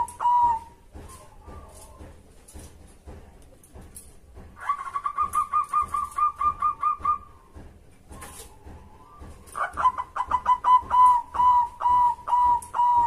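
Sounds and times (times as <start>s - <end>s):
dove cooing: 0.0s - 2.0s, 4.6s - 7.3s, 8.2s - 13.0s.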